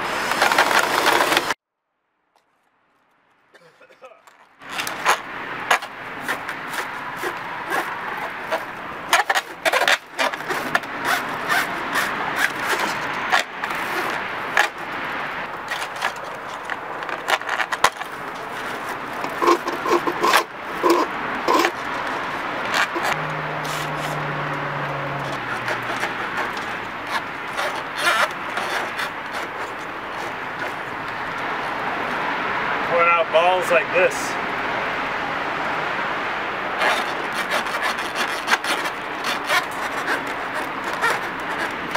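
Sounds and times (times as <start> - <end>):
brush scraping inside vent pipe: 4.8 - 31.5, 36.8 - 41.9.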